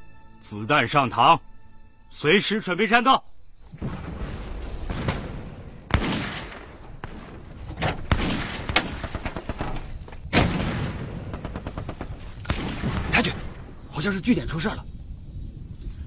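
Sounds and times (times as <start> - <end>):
heavy gunshots with rumble: 3.7 - 13.7.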